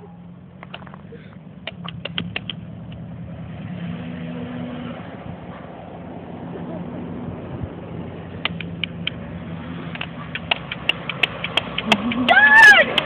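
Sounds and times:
short clicks: 0:01.6 - 0:03.0.

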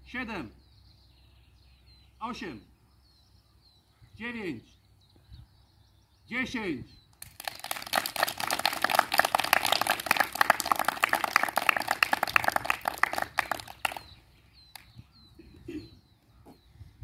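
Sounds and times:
group of people clapping: 0:07.2 - 0:14.9.

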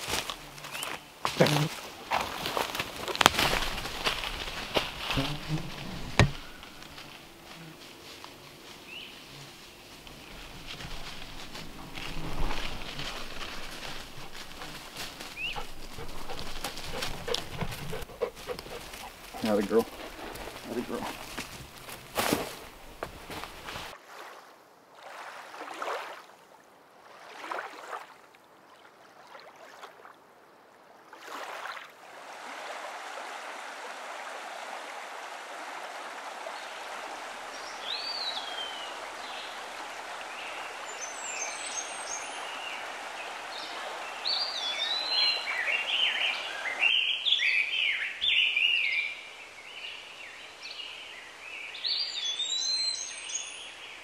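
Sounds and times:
soft rustles: 0:00.0 - 0:23.9
running water: 0:00.0 - 0:24.4, 0:31.1 - 0:46.9
birds singing: 0:00.6 - 0:01.6, 0:10.2 - 0:21.5, 0:37.5 - 0:39.6, 0:40.2 - 0:54.0.

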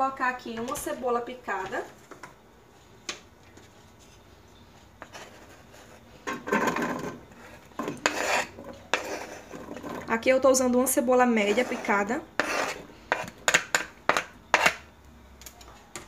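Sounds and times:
onion scraped into metal pan: 0:05.0 - 0:10.0, 0:11.4 - 0:13.4.

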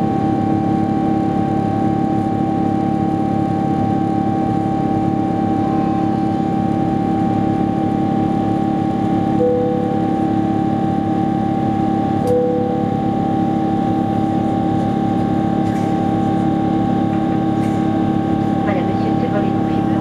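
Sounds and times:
jet engines droning in cabin: 0:00.0 - 0:20.0
short tone: 0:09.4 - 0:10.4, 0:12.2 - 0:13.5.

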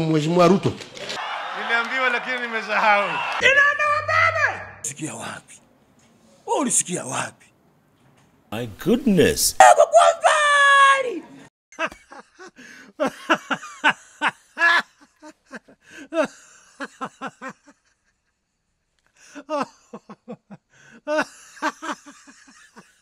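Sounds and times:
man laughing: 0:11.8 - 0:18.1, 0:19.4 - 0:23.0.

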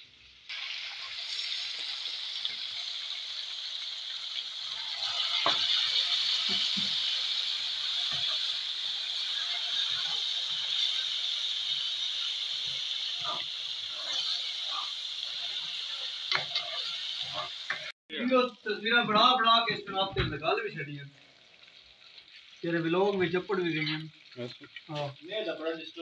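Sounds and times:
fish deep-frying in oil: 0:00.0 - 0:26.0
oil crackles: 0:19.8 - 0:26.0.

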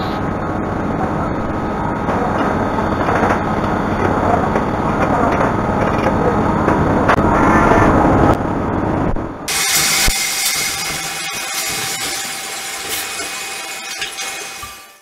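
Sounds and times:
cnc machine milling steel: 0:09.5 - 0:15.0.

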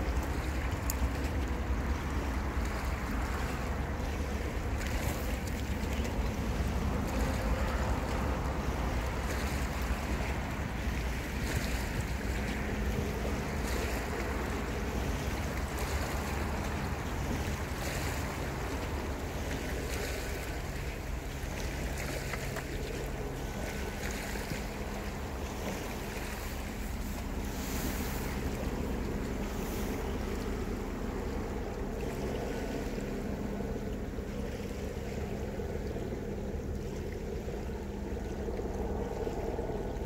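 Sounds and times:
small waves on rocky shore: 0:00.0 - 0:40.0.

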